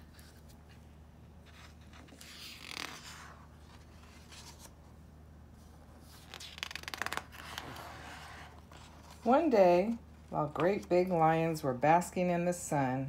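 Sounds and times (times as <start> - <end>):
book page turning: 0.0 - 4.8, 5.6 - 9.3.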